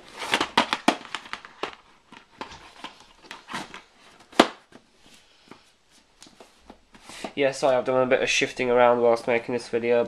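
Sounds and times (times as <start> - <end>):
plastic cases clicking and knocking: 0.2 - 4.8.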